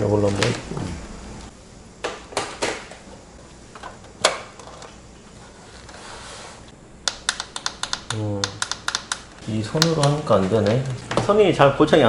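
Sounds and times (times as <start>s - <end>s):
knocks and clicks on computer case: 2.0s - 2.9s.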